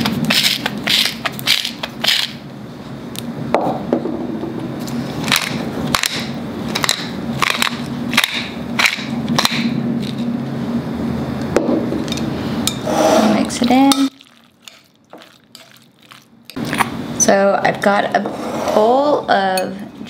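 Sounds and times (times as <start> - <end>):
pepper mill grinding: 0.2 - 2.4, 13.9 - 16.3.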